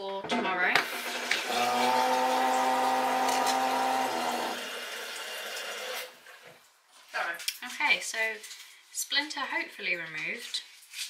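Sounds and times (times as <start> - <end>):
tap water running into sink: 0.8 - 6.5
humming in pipes: 1.0 - 6.1.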